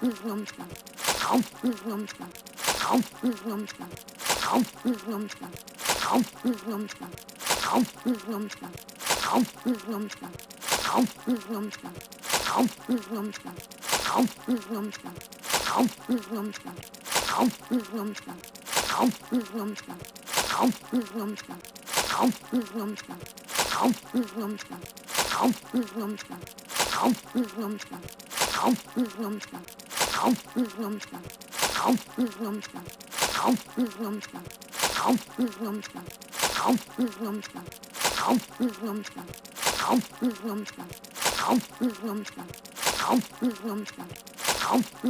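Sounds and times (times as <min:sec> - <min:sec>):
girl's muffled chewing noises: 0:00.0 - 0:45.0.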